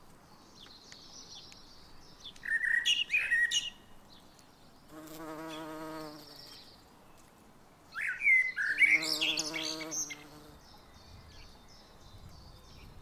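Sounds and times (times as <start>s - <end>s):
songbirds chirping: 0.0s - 13.0s
bee wings buzzing: 4.9s - 6.6s.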